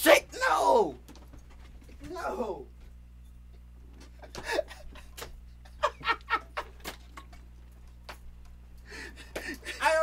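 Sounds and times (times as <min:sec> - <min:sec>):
low electrical hum: 0:00.0 - 0:10.0
man laughing breathily: 0:04.2 - 0:06.8, 0:08.8 - 0:09.8.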